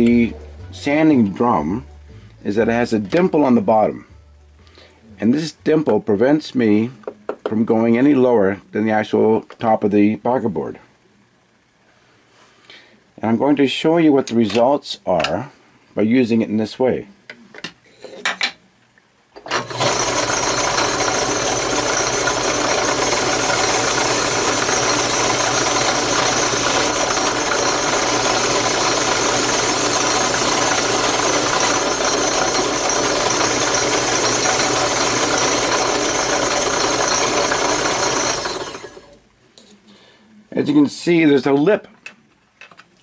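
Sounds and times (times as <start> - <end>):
drill press running: 19.4 - 39.2
wood sanding against drum: 20.3 - 38.5.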